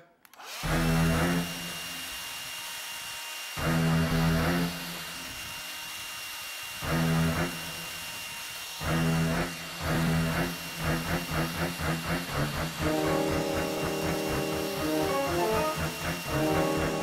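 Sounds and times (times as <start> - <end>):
distorted electric guitar chords: 11.0 - 17.0.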